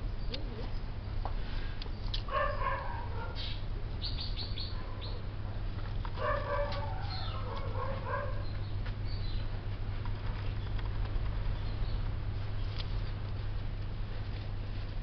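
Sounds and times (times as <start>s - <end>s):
steady low hum: 0.0s - 15.0s
bird calls: 1.8s - 5.3s, 6.2s - 9.6s.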